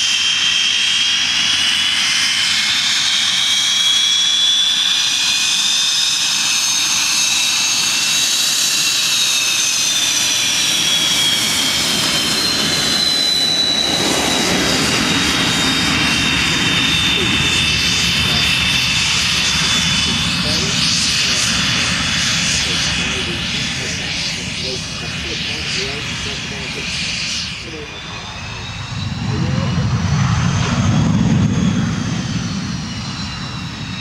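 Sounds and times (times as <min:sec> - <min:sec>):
jet engine whine and rush: 0:00.0 - 0:34.0
deep jet roar: 0:09.7 - 0:34.0.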